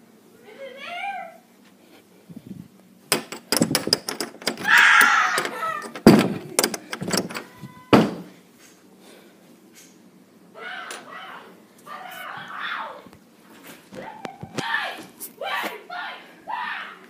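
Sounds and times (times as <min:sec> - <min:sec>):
knocks and thumps on wood: 0:05.9 - 0:07.3, 0:08.0 - 0:08.3.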